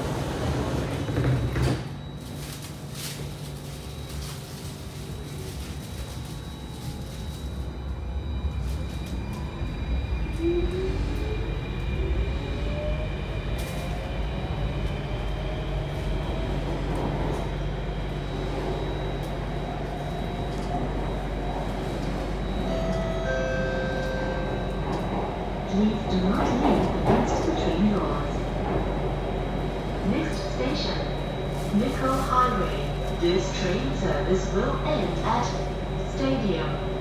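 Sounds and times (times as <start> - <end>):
train low hum: 0.0 - 37.0
constant high tone: 18.6 - 26.6.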